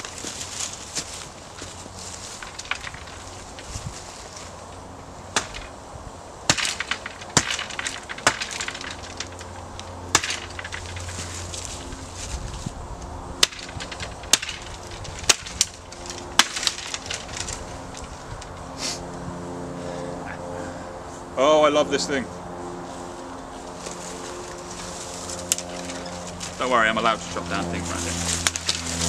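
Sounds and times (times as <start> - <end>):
axe chopping wood: 5.3 - 5.7, 6.5 - 9.2, 10.1 - 11.0, 13.4 - 15.7, 16.4 - 17.2.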